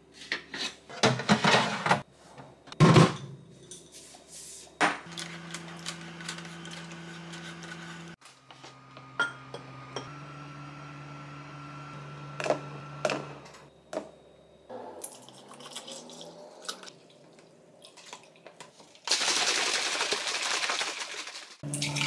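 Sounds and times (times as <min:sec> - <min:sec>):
liquid sloshing in shaken shaker: 0:17.8 - 0:21.6
milk pouring into plastic shaker: 0:19.1 - 0:21.6.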